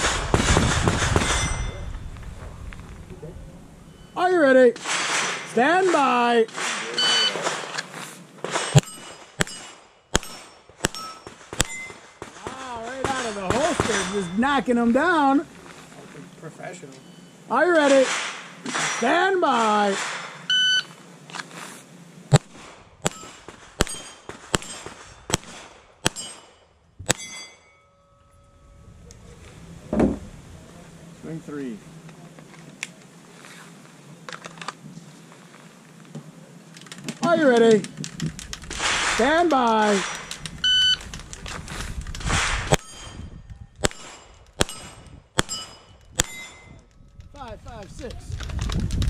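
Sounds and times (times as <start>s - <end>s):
metallic ringing of steel plate: 1.1s - 2.1s, 8.6s - 14.7s, 23.0s - 25.3s, 26.0s - 29.4s, 42.7s - 46.9s
shot timer beep: 7.0s - 7.4s, 20.5s - 20.9s, 40.6s - 41.0s
pistol shots: 8.4s - 14.3s, 17.8s - 19.0s, 19.6s - 20.5s, 22.3s - 26.5s, 43.8s - 46.7s.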